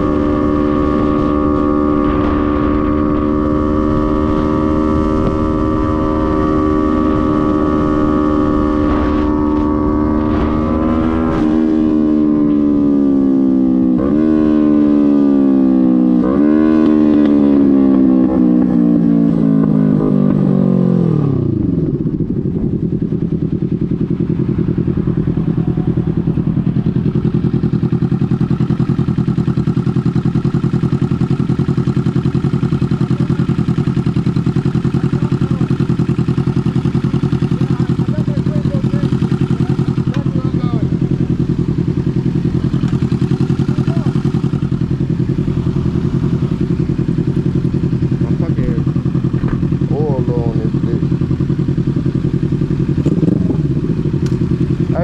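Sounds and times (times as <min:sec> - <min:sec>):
wind noise: 0:00.0 - 0:13.4, 0:21.4 - 0:24.4
motorcycle engine downshifting: 0:00.0 - 0:55.0.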